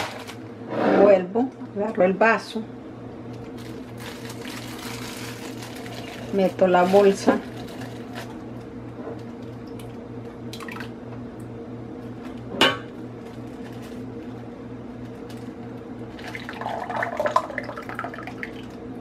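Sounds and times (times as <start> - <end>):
plastic bag rustling: 0.0 - 0.4, 3.3 - 9.6, 13.2 - 16.9
steady low hum: 0.0 - 19.0
liquid pouring into plastic bag: 3.5 - 8.6, 16.1 - 18.8.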